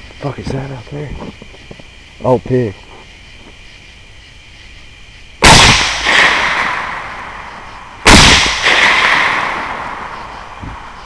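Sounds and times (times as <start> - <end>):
rifle shots: 5.4 - 7.3, 8.0 - 10.2.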